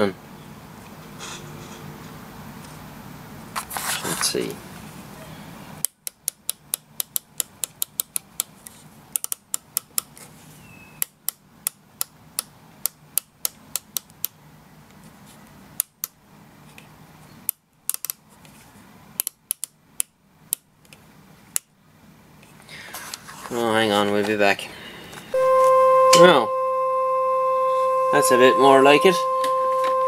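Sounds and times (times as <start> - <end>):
sharp clicks: 5.8 - 8.5, 9.2 - 10.1, 19.2 - 21.7
faint low hum: 22.0 - 30.0.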